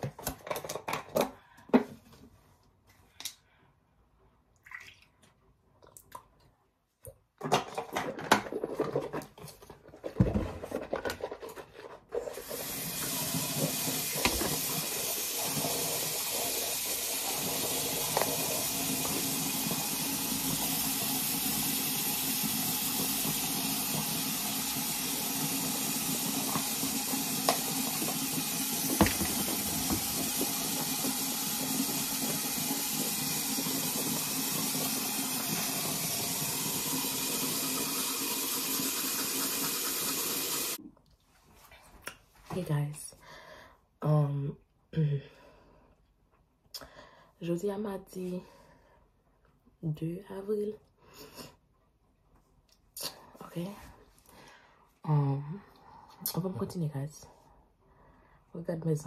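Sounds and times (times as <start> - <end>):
water running from a tap: 12.3 - 40.8.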